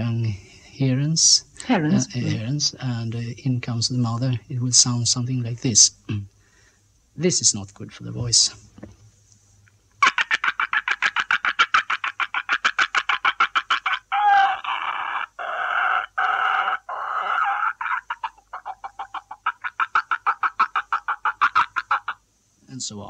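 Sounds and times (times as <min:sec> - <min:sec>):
man imitating heron chicks: 0:01.9 - 0:02.5, 0:10.0 - 0:22.2.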